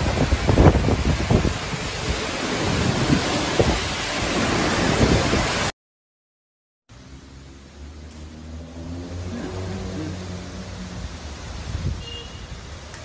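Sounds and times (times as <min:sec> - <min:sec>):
heavy rain: 0:00.0 - 0:05.7, 0:06.9 - 0:13.0
wind hissing against microphone: 0:00.0 - 0:05.7, 0:09.2 - 0:13.0.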